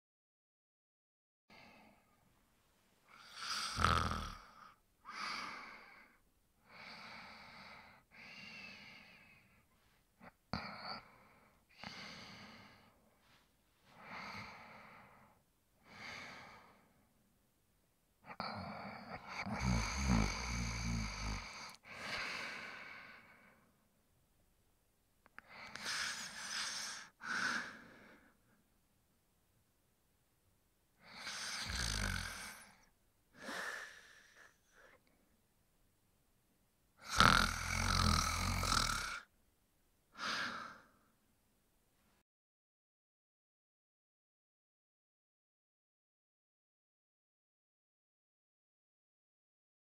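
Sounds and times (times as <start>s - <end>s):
man snoring: 3.1s - 6.0s, 18.3s - 22.9s, 25.6s - 27.8s, 31.0s - 34.6s, 37.0s - 39.3s.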